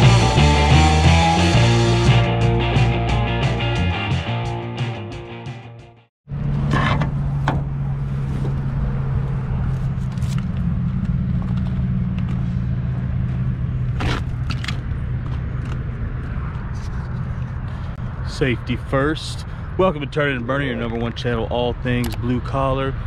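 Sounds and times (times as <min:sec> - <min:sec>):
knocks and scrapes: 0:06.5 - 0:08.8, 0:09.6 - 0:18.0.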